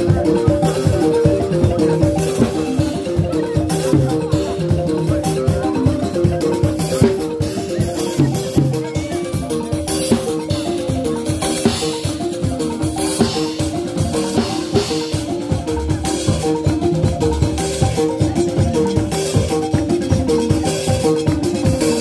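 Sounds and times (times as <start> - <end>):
drums beating: 0.0 - 22.0
wooden xylophone melody: 0.0 - 22.0.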